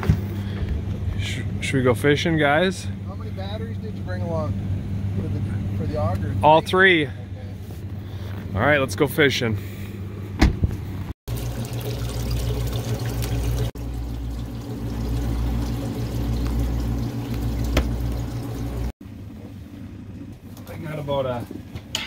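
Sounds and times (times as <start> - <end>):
low pump hum: 0.0 - 8.6, 9.6 - 22.0
water pouring into bucket: 11.3 - 18.9.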